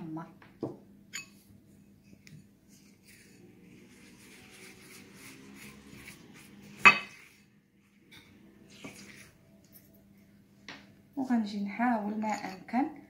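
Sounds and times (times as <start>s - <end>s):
spatula scraping in glass bowl: 2.4s - 9.8s.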